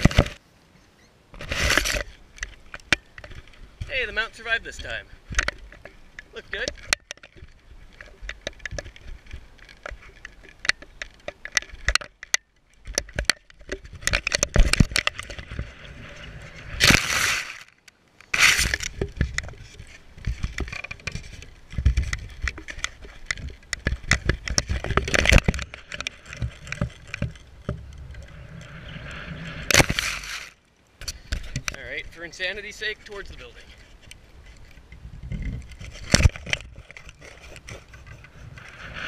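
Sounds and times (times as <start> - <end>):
camera handling clicks and knocks: 5.3 - 15.6, 17.8 - 28.0
loud rustles: 13.9 - 27.5, 28.7 - 31.8
grass brushing: 14.0 - 27.6, 28.3 - 30.6.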